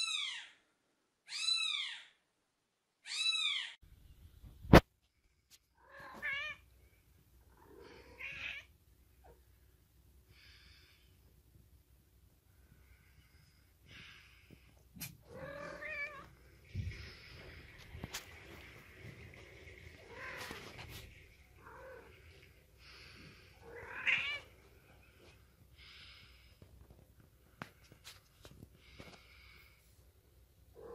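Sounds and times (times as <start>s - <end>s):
cats scuffling: 16.2s - 21.6s.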